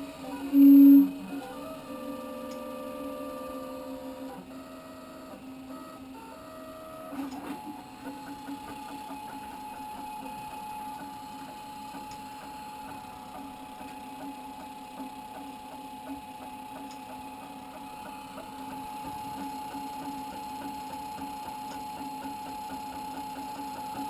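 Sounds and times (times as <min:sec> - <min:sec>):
stepper motors whining: 0:00.0 - 0:09.6.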